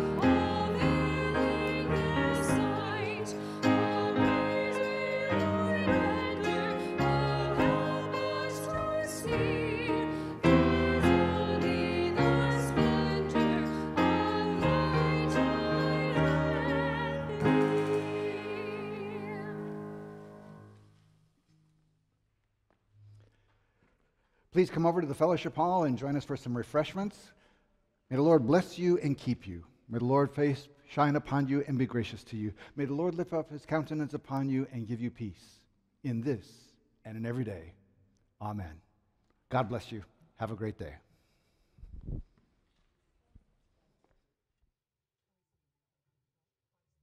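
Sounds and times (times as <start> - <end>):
group singing a hymn: 0.0 - 20.4
piano chords: 0.0 - 20.8.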